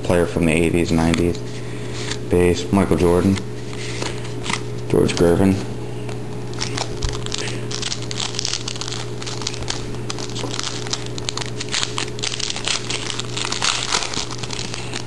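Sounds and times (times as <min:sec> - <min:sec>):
trading cards flipped by hand: 0:03.2 - 0:05.4, 0:06.0 - 0:15.0.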